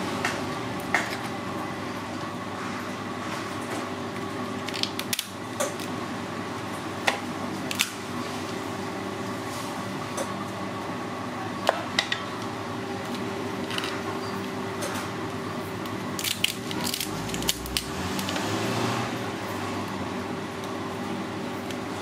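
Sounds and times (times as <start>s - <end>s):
steady background hum: 0.0s - 22.0s
scissors cutting crab shell: 16.2s - 18.4s.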